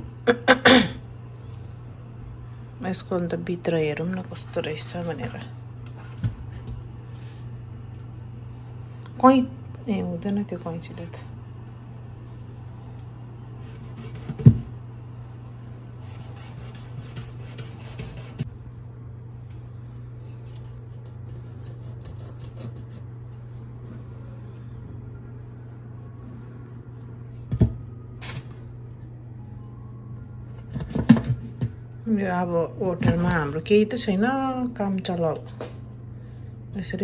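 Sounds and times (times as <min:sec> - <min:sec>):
steady low hum: 0:00.0 - 0:37.0
scissors cutting fish: 0:20.5 - 0:23.0.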